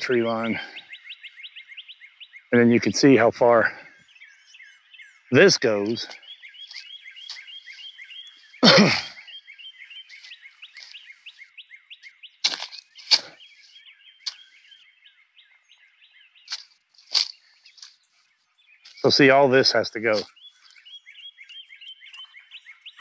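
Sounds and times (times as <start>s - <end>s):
birds chirping: 0.0s - 23.0s
crackles in dry leaves: 5.7s - 8.7s, 10.0s - 14.8s, 16.4s - 20.9s.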